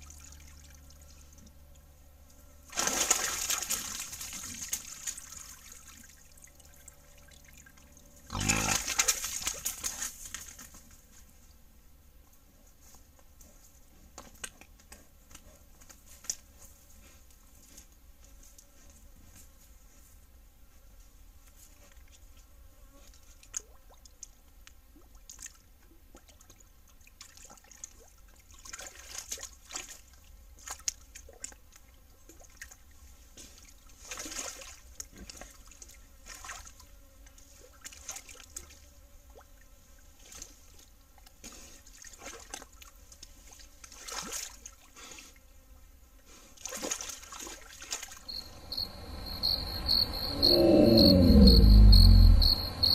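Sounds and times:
hog splashing in mud: 0:02.7 - 0:06.4, 0:08.3 - 0:10.9, 0:27.2 - 0:32.8, 0:33.5 - 0:36.8, 0:40.2 - 0:44.9, 0:46.6 - 0:49.0.

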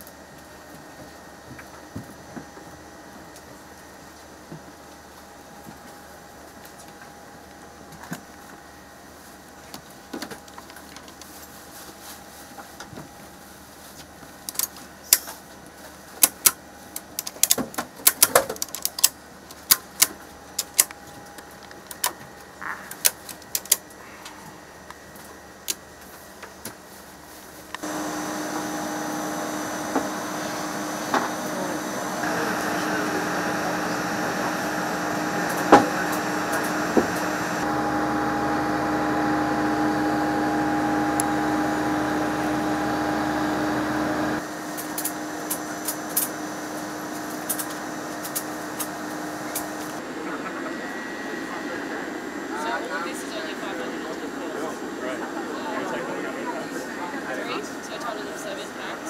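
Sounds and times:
ratchet straps clicking: 0:22.9 - 0:23.9
mechanical drone with hum: 0:27.3 - 0:59.0.

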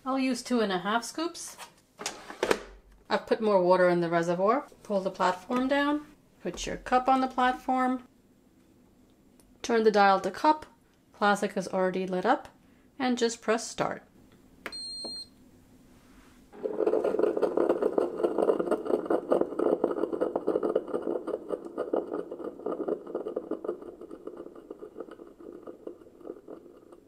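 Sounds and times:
short high beep: 0:14.7 - 0:15.3.

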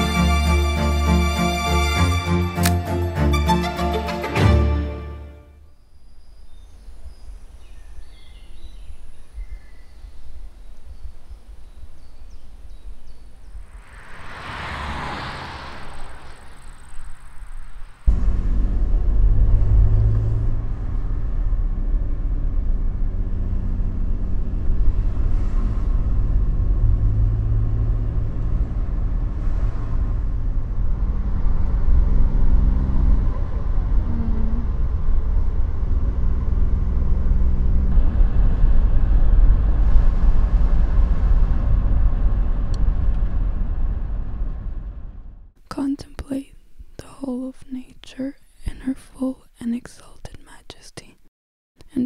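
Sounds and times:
car engine rumble: 0:06.1 - 0:47.2.

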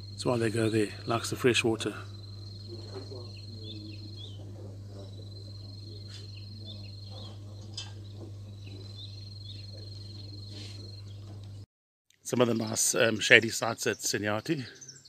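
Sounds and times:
insect trilling: 0:00.0 - 0:11.2
steady low hum: 0:00.0 - 0:11.7
bird chirps: 0:02.0 - 0:11.4, 0:13.3 - 0:15.0.

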